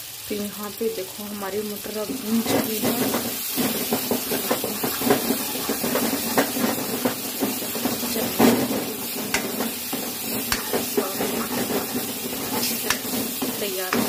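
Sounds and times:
food sizzling in a pan: 0.0s - 14.0s
metal spatula scraping pan: 2.4s - 8.6s, 9.4s - 14.0s.

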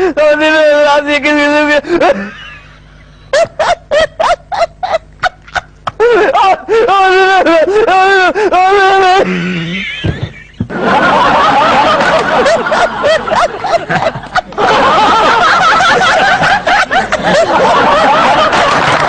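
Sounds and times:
audience laughing: 9.6s - 19.0s.

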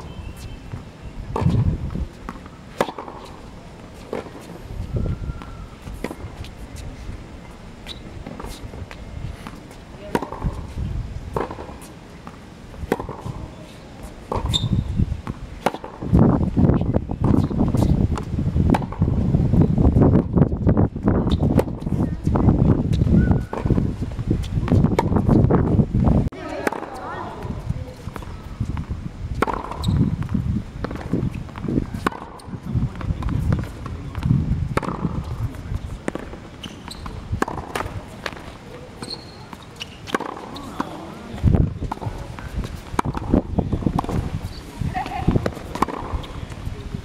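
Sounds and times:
tennis ball bouncing on hard court: 0.7s - 3.4s, 7.9s - 16.2s, 17.2s - 19.1s, 22.9s - 25.4s, 26.3s - 46.7s
tennis ball struck by racquets: 0.7s - 3.4s, 8.2s - 10.7s, 11.3s - 13.5s, 14.2s - 16.2s, 17.2s - 19.2s, 24.6s - 25.4s, 26.3s - 46.7s.

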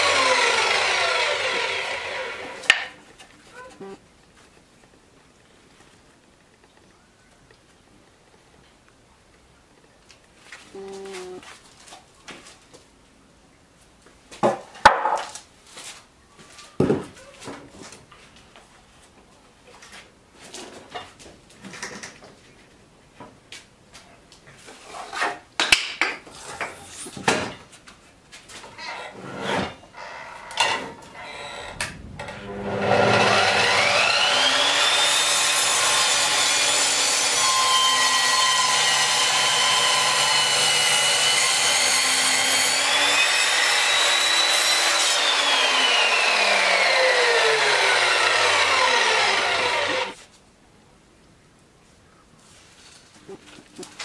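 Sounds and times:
mitre saw motor whining: 0.0s - 2.7s, 30.0s - 50.2s
saw blade cutting wood: 0.0s - 3.0s, 28.7s - 50.2s.

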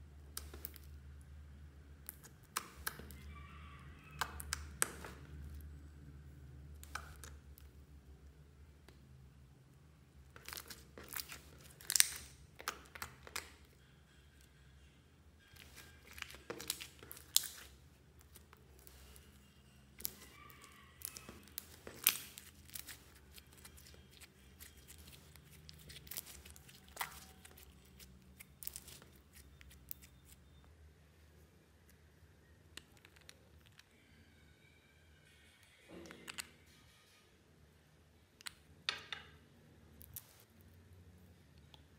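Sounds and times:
slime crackling and popping: 0.2s - 1.1s, 2.0s - 3.2s, 4.1s - 5.6s, 6.7s - 7.8s, 10.3s - 13.7s, 15.5s - 19.3s, 20.0s - 30.4s.

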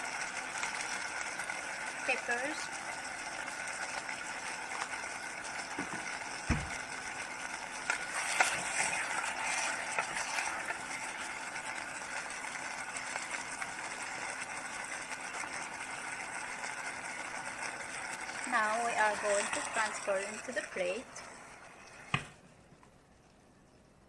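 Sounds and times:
food sizzling in a pot: 0.0s - 22.5s
dull knock: 5.8s - 6.7s
wooden spatula scraping pot: 8.1s - 10.8s.

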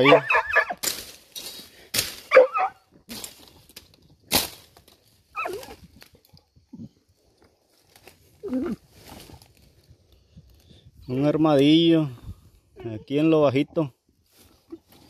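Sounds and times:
dog whining: 0.0s - 0.8s, 2.3s - 2.8s, 5.4s - 5.8s
scuffs of dirt: 0.6s - 11.0s, 14.2s - 15.0s.

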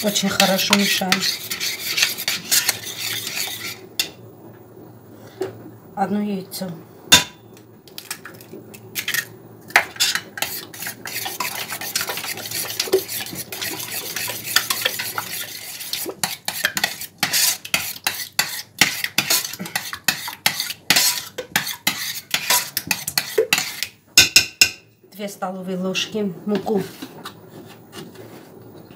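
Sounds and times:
metal spoon scraping and clinking pot: 0.0s - 4.2s, 9.0s - 23.9s.

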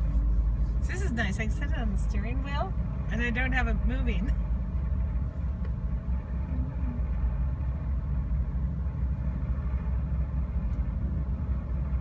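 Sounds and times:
ferry engine rumble: 0.0s - 12.0s.

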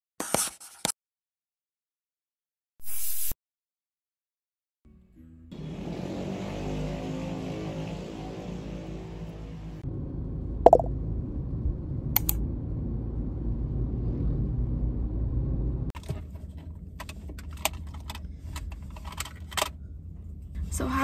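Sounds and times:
road rumble: 5.2s - 21.0s
clicks and rattles of handling: 16.0s - 19.8s.

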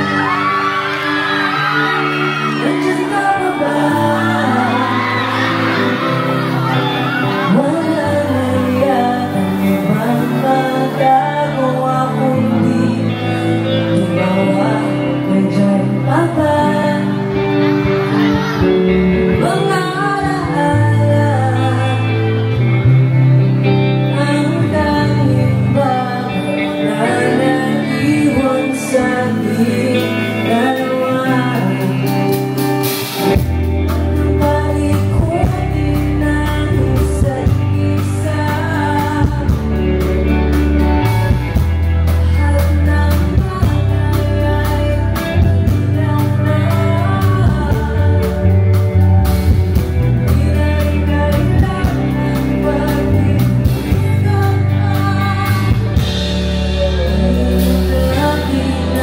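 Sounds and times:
live rock band playing: 0.0s - 59.0s
person singing: 0.0s - 59.0s
bass and drums beat: 31.5s - 59.0s.

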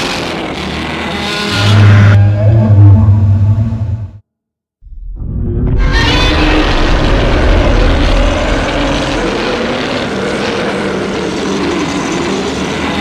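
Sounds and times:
monster roar: 1.4s - 4.0s, 5.5s - 12.9s
deep rumble: 1.6s - 4.2s, 4.8s - 12.4s.

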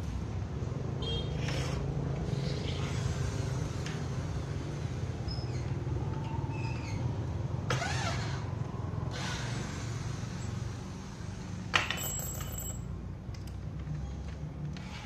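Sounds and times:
electric drill boring into wood: 7.7s - 8.4s.

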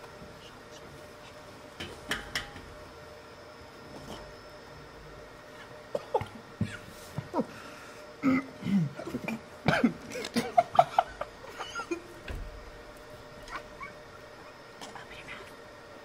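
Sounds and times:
people coughing: 5.9s - 6.9s, 8.2s - 12.1s
stifled laughter: 8.2s - 12.2s.

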